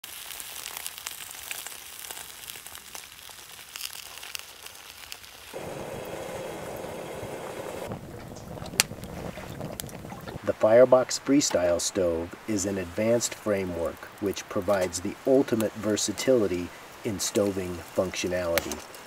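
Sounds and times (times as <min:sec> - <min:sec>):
food sizzling in a pan: 0:00.0 - 0:07.9
stick fire crackling: 0:00.0 - 0:19.0
dull rushing sound: 0:05.6 - 0:10.6.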